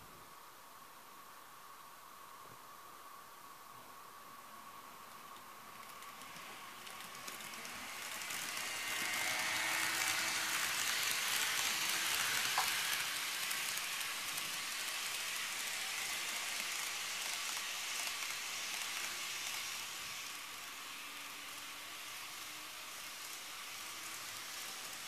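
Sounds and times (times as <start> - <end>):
model train wheels and motor whirring: 1.1 - 25.0.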